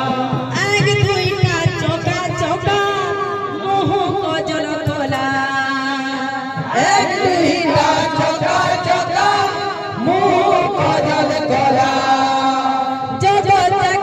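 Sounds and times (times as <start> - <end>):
women singing devotional song: 0.0 - 14.0.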